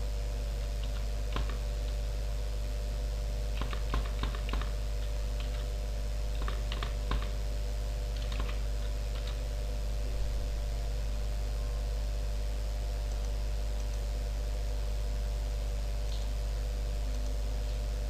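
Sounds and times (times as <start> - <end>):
low hum: 0.0 - 18.0
keyboard typing: 0.8 - 1.6, 3.5 - 5.7, 6.3 - 7.4, 8.1 - 9.4.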